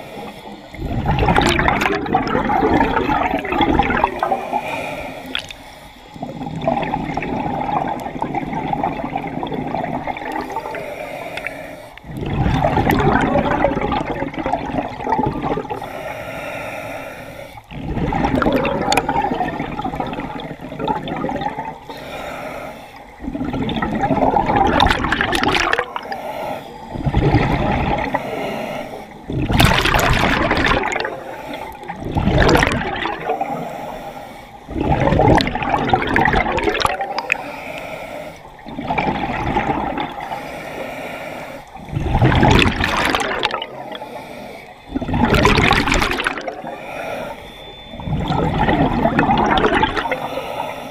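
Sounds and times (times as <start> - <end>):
diver breathing through regulator: 0.0 - 14.2, 15.3 - 50.9
exhaled bubbles rushing: 0.7 - 4.6, 5.3 - 5.6, 6.2 - 10.8, 12.0 - 15.8, 17.6 - 21.9, 23.2 - 26.1, 26.9 - 28.2, 29.2 - 33.6, 34.7 - 37.3, 38.6 - 40.3, 41.8 - 44.0, 44.9 - 46.8, 47.8 - 50.2.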